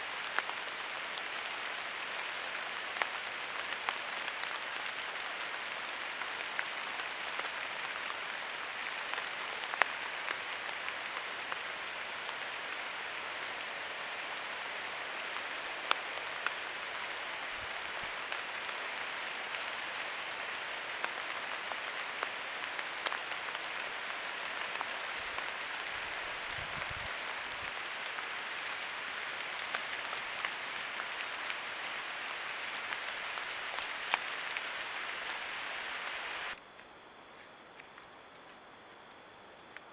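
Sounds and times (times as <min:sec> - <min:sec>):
steady hiss: 0:00.0 - 0:39.9
faint ticks: 0:36.5 - 0:39.9.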